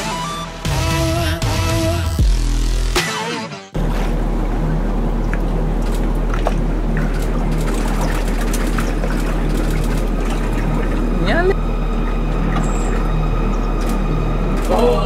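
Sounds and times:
uneven low drone: 0:03.8 - 0:15.0
wind: 0:03.8 - 0:15.0.

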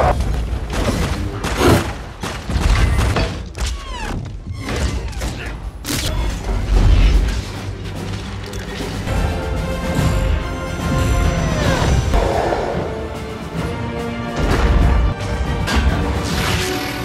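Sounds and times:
orchestral music: 0:06.1 - 0:17.0.

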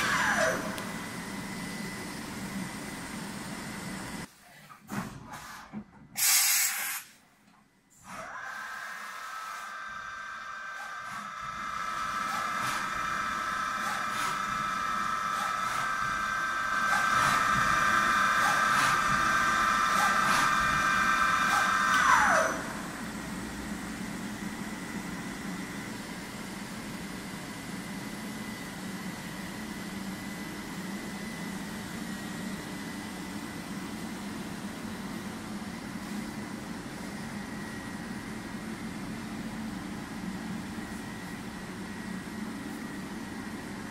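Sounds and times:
machine spindle whine: 0:00.0 - 0:04.3, 0:08.0 - 0:43.9
compressed air hiss: 0:06.2 - 0:07.2
low machine hum: 0:10.8 - 0:43.9.

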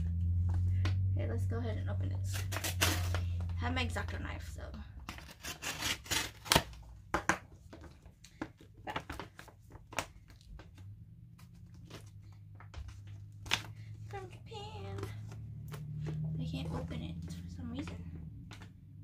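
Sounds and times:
plastic bag crackling and ripping: 0:02.3 - 0:03.4.

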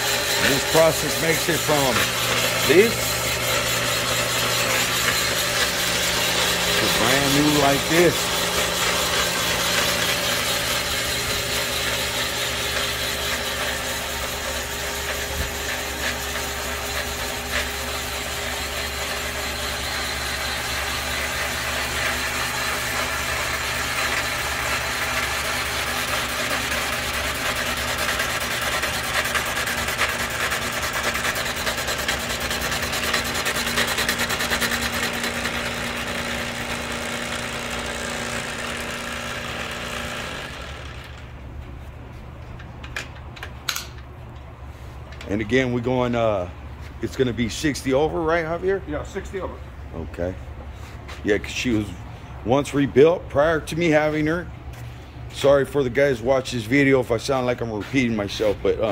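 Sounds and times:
boring bar motor humming: 0:00.0 - 0:45.3.

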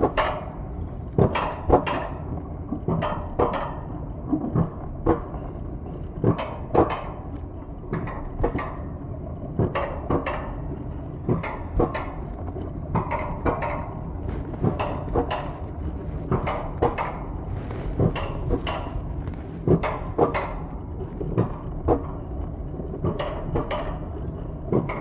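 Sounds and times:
low rumble of lift: 0:00.0 - 0:25.0
metallic clacks and clanks: 0:13.0 - 0:22.1.

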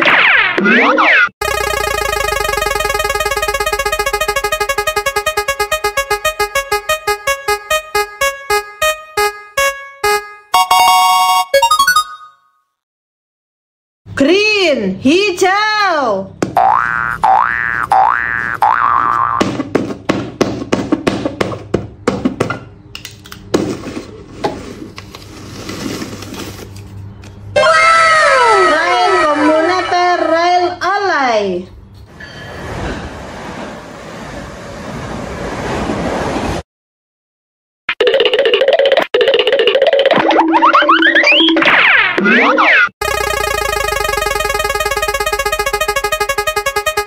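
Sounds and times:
prize wheel electronic ticks: 0:01.4 - 0:12.2, 0:43.0 - 0:47.0.

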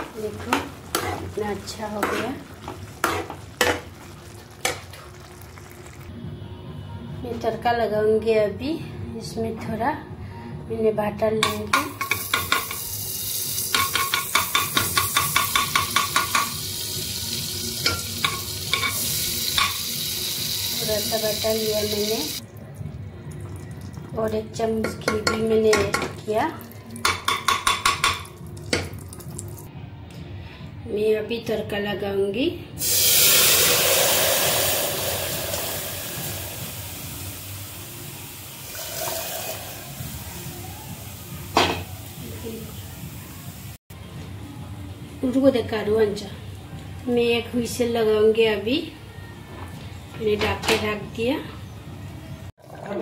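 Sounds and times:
hot oil sizzling in pot: 0:00.0 - 0:06.1, 0:11.4 - 0:22.4, 0:32.8 - 0:43.8
metal spoon tapping steel pot: 0:11.4 - 0:12.8, 0:13.7 - 0:16.6, 0:24.8 - 0:26.2, 0:27.0 - 0:29.0.

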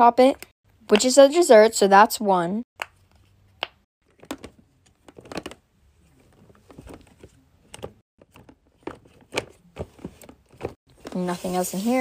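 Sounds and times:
rummaging through toys in drawer: 0:04.2 - 0:12.0.

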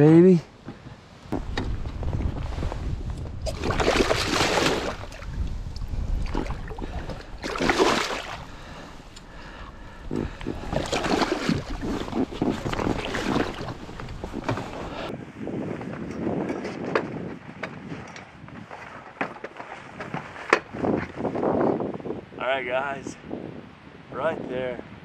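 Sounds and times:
low wind rumble: 0:00.0 - 0:18.8, 0:19.9 - 0:25.0
fish thrashing and splashing water: 0:03.4 - 0:05.4, 0:06.2 - 0:08.6, 0:10.2 - 0:15.1.

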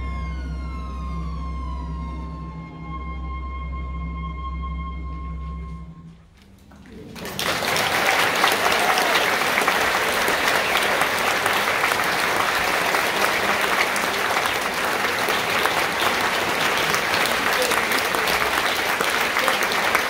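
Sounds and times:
orchestra chord with oboe: 0:00.0 - 0:06.4
audience applause: 0:06.7 - 0:20.0.

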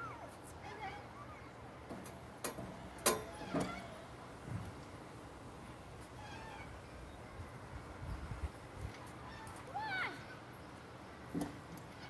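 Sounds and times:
distant children's voices: 0:00.0 - 0:01.9, 0:03.1 - 0:04.2, 0:09.1 - 0:10.8.

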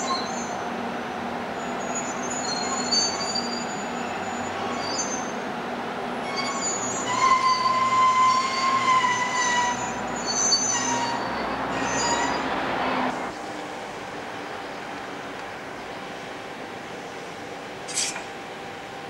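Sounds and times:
wheels squealing on rails: 0:00.0 - 0:00.6, 0:01.5 - 0:05.4, 0:06.1 - 0:13.4
low train rumble: 0:00.0 - 0:19.0.

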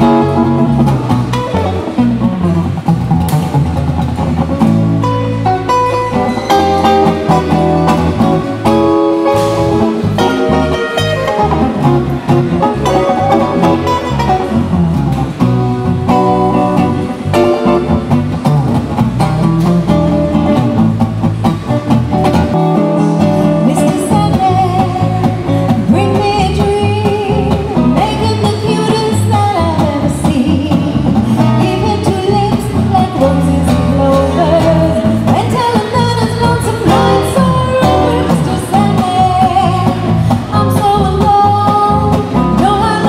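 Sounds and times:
acoustic guitar playing: 0:00.0 - 0:43.0
woman singing: 0:23.5 - 0:43.0.

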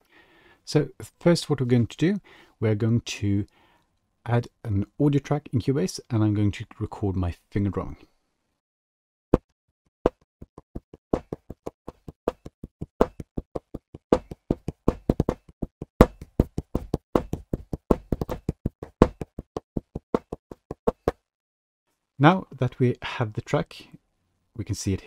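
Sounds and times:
fingers drumming on a desk: 0:10.1 - 0:21.1.

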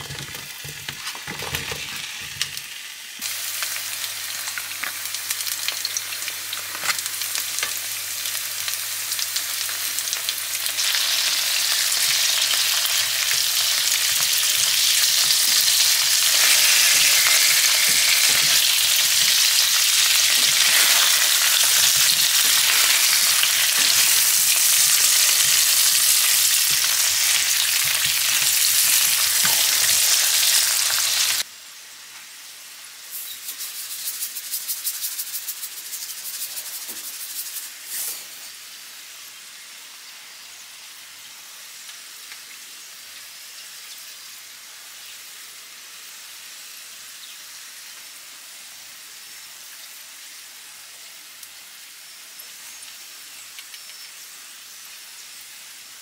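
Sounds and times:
potatoes sizzling in hot oil: 0:00.0 - 0:56.0
spatula turning food in pan: 0:09.6 - 0:31.4
seasoning shaker ticks: 0:33.1 - 0:38.1, 0:52.8 - 0:54.2.

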